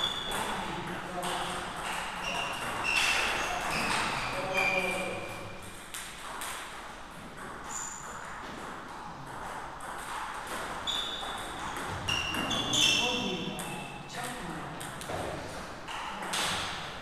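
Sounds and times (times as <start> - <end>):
short high squeaks: 2.2 - 5.4, 10.8 - 11.5, 12.1 - 13.9.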